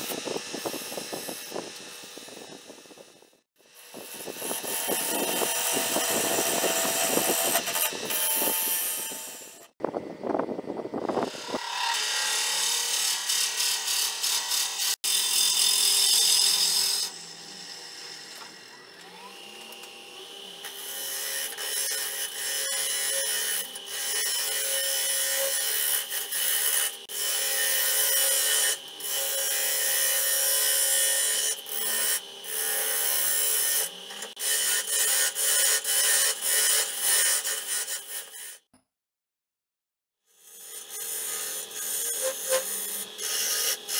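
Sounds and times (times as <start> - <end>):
lathe tool scraping wood: 0.0 - 9.8, 19.4 - 38.6, 40.5 - 43.9.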